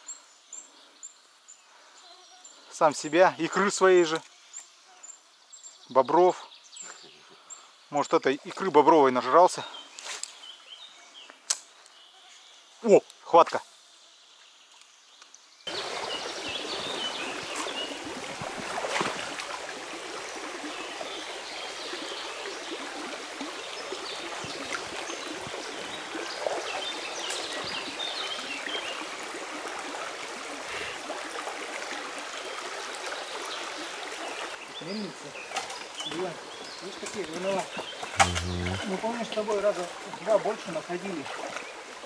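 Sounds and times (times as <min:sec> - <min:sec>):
river running over stones: 0:15.7 - 0:42.0.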